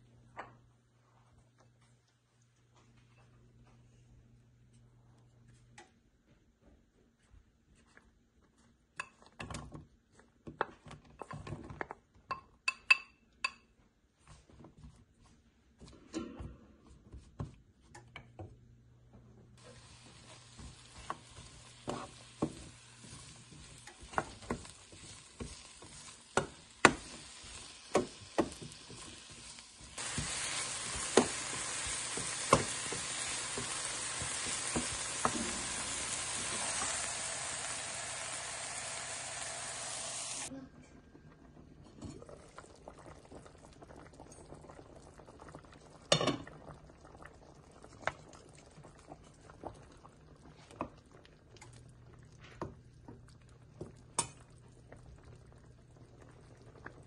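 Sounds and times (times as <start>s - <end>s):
mushrooms sizzling in oil: 19.6s - 40.5s.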